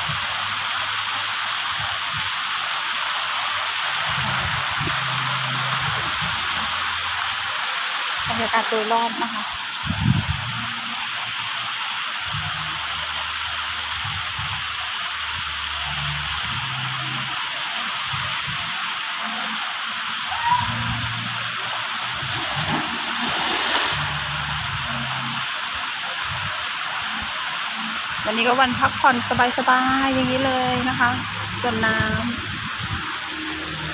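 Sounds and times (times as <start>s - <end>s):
water rushing down slides: 19.2s - 29.0s
water splashing into pool: 20.4s - 25.5s.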